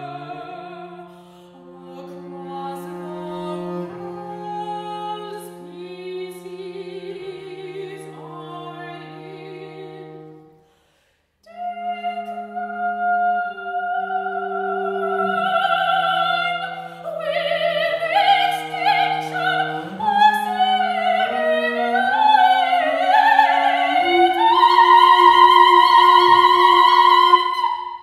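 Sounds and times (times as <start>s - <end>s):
soprano singing with vibrato: 0.0s - 1.1s, 11.4s - 28.0s
bowed double bass: 0.0s - 10.6s, 12.3s - 27.8s.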